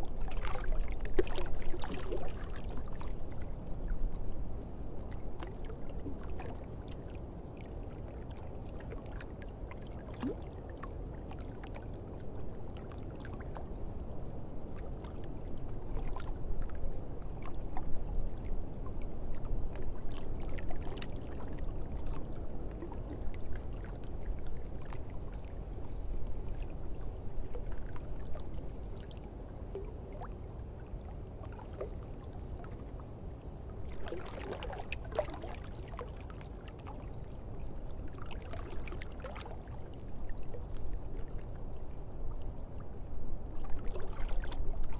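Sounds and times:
drips and small splashes: 0.2s - 4.2s, 4.8s - 44.9s
rushing water: 33.8s - 36.2s.

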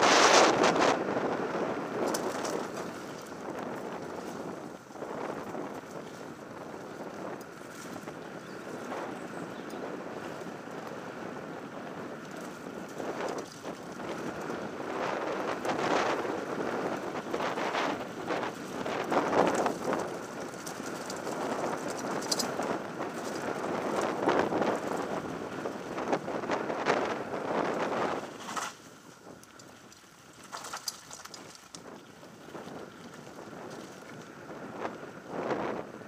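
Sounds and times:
bike rattling and knocking: 0.0s - 34.2s
wind rushing on microphone: 0.0s - 36.0s
tyres crunching over gravel: 12.0s - 26.7s, 27.6s - 34.5s.

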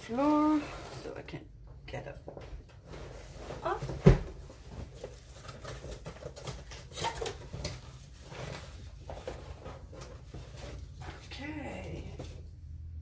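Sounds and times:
cardboard package rustling and scratching: 2.8s - 12.6s.

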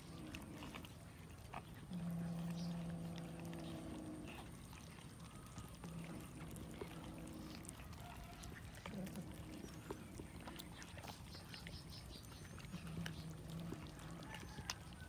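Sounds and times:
cats chewing meat: 0.0s - 15.0s
cat growling: 1.6s - 10.9s, 12.5s - 14.7s.

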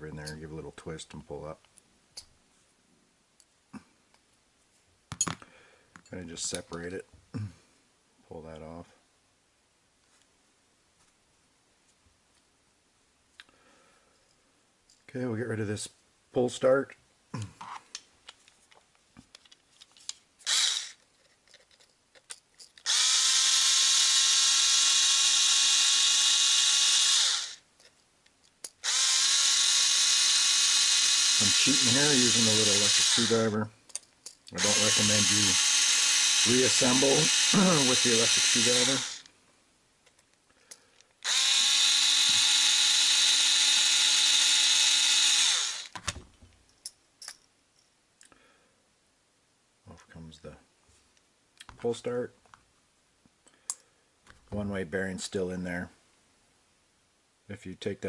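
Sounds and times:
electric screwdriver running: 20.4s - 21.0s, 22.8s - 27.6s, 28.8s - 33.5s, 34.6s - 39.3s, 41.2s - 46.0s.

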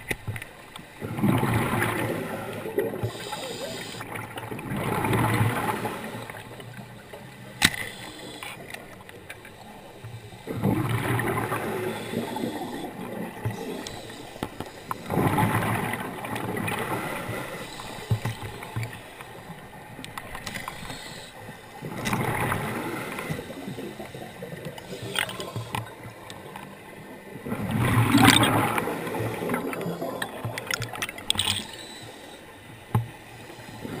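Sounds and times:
underwater exhaust bubbles gurgling: 0.0s - 34.0s
regulator hiss: 3.0s - 4.1s, 7.8s - 8.6s, 13.6s - 15.1s, 20.7s - 21.4s.

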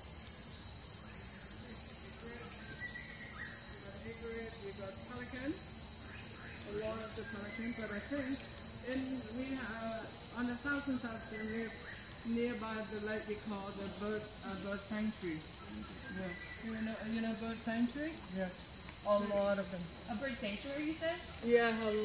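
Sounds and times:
high-pitched insect drone: 0.0s - 22.0s
faint murmur: 6.7s - 22.0s.

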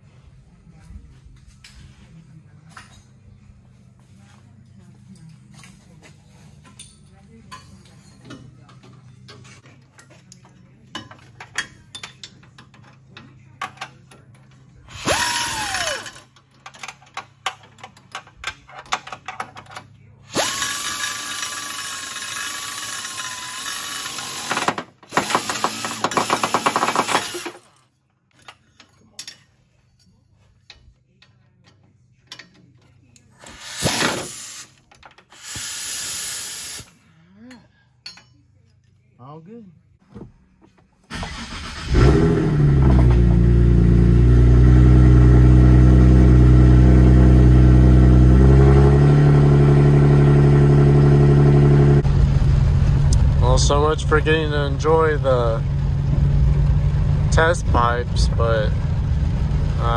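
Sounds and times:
pneumatic air ratchet: 14.9s - 16.2s, 20.3s - 27.6s, 33.4s - 37.0s.

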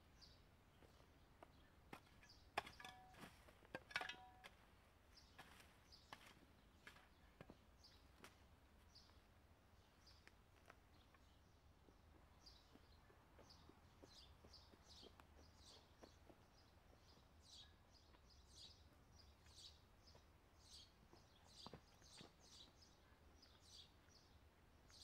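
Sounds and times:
bird chirping: 10.9s - 25.0s.

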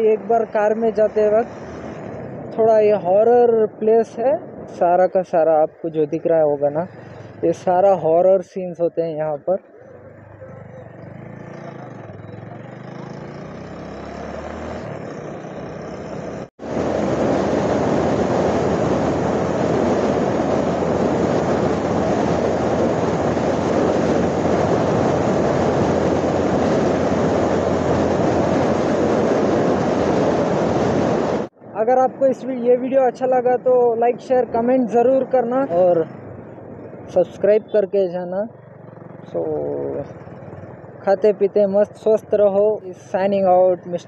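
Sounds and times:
road noise: 0.0s - 44.0s
motorcycle engine: 9.9s - 31.4s, 38.5s - 41.2s
wind noise on microphone: 16.6s - 37.6s.

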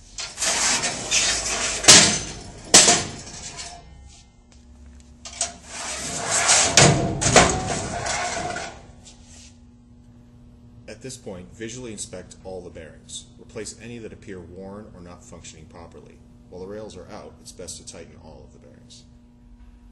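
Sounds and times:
drawer rails rattling and scraping: 0.2s - 3.8s, 5.3s - 8.9s
sharp metal clanks: 0.2s - 4.1s.

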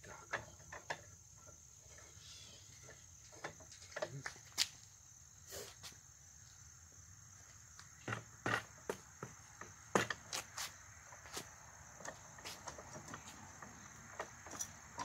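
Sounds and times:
crickets chirring: 0.0s - 15.0s
floor jack clicks and knocks: 8.0s - 10.5s.

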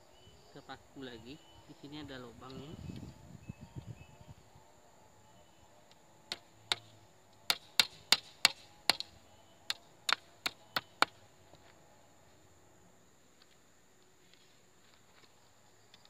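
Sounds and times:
hammer striking nail into wood: 6.3s - 6.9s, 7.5s - 9.1s, 9.7s - 11.2s.

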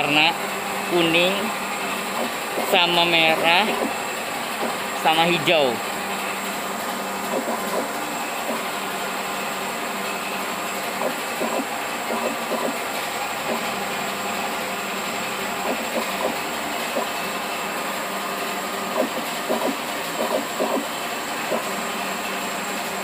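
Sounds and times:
pump mechanical whirr: 0.0s - 23.0s
faint machine clicks: 11.0s - 12.8s, 19.0s - 20.8s.

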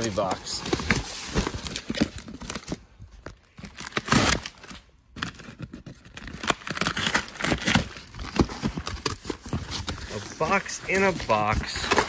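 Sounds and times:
cardboard crinkling and rustling: 0.0s - 12.0s
packing tape tearing: 3.6s - 12.0s.

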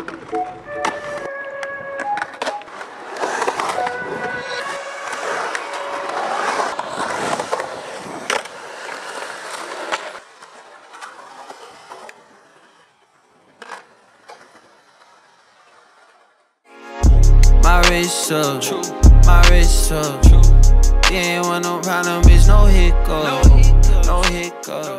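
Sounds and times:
skateboard wheels rolling on concrete: 0.0s - 17.2s.

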